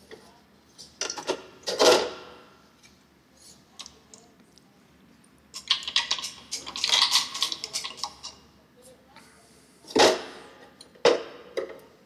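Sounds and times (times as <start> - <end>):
toys knocking and clattering: 5.6 - 8.4.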